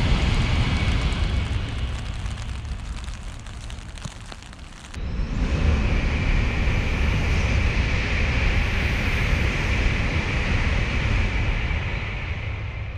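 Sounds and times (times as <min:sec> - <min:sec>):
train rushing through tunnel: 0:00.0 - 0:01.8, 0:05.0 - 0:12.9.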